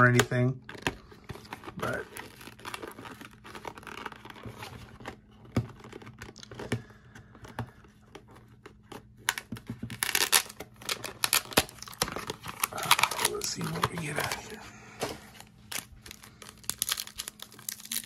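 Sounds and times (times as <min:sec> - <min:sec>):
foil wrapper crinkling and tearing: 0:00.0 - 0:06.9, 0:07.8 - 0:18.0
card box scratches and clicks: 0:00.1 - 0:06.7, 0:07.4 - 0:14.6.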